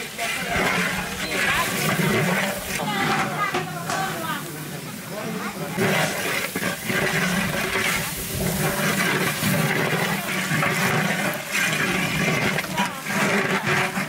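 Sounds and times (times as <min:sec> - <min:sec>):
metal spatula scraping a pot: 0:00.0 - 0:04.5, 0:05.1 - 0:14.0.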